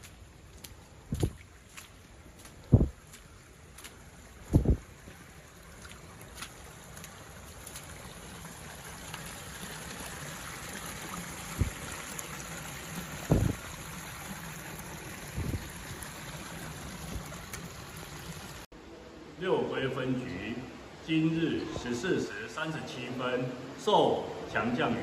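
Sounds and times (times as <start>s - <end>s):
muddy water rushing over rocks: 0.0s - 18.7s
low thumps: 2.6s - 3.0s, 4.5s - 4.8s.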